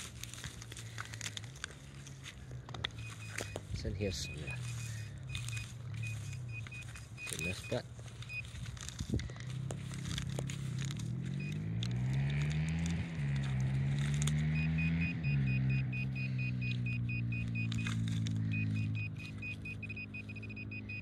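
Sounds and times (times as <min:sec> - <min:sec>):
rapid short high beeps: 0:03.0 - 0:08.5, 0:14.5 - 0:17.8, 0:18.4 - 0:21.0.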